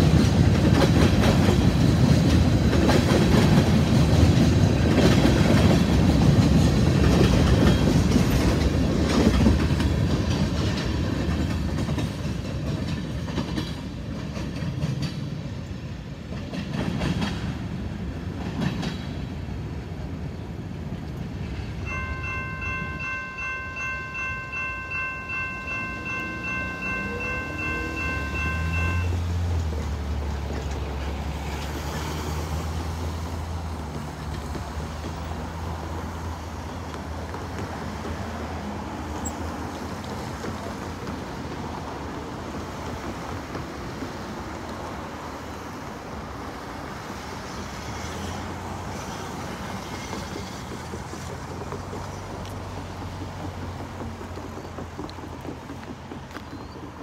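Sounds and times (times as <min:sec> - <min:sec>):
freight train wheels clattering: 0:00.0 - 0:19.8, 0:21.2 - 0:57.0
locomotive horn chord: 0:21.9 - 0:29.1.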